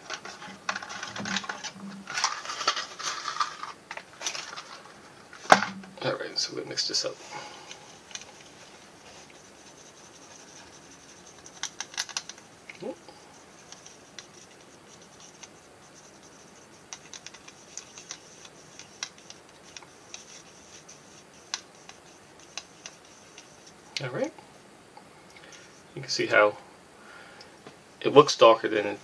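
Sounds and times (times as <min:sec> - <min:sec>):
toothpick scratching plastic cup: 0:07.9 - 0:24.0.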